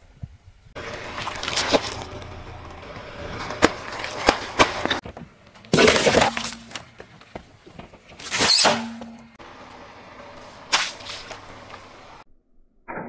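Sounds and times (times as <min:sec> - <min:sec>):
loud crackling crunches: 0:00.8 - 0:07.3
tyre crushing objects: 0:00.8 - 0:09.0.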